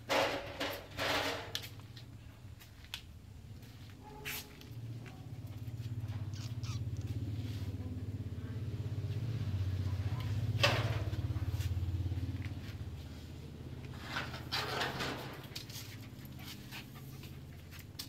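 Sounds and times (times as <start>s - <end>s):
vehicle engine passing: 4.6s - 18.0s.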